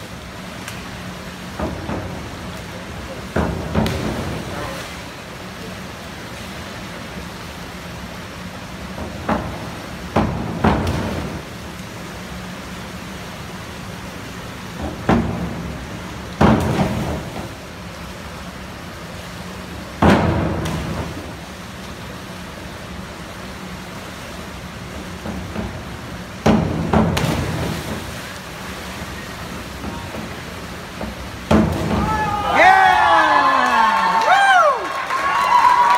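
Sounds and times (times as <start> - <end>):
echoing thuds and bangs: 16.4 - 17.4, 20.0 - 21.2, 26.4 - 28.1, 31.0 - 32.2.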